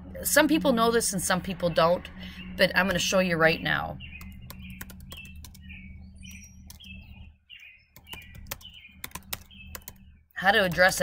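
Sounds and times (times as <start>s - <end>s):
faint steady hum: 0.0s - 11.0s
keyboard typing clicks: 4.2s - 5.7s, 6.4s - 7.2s, 7.9s - 11.0s.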